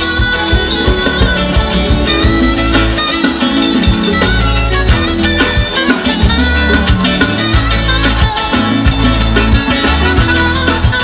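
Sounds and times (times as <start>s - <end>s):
live band playing pop music: 0.0s - 11.0s.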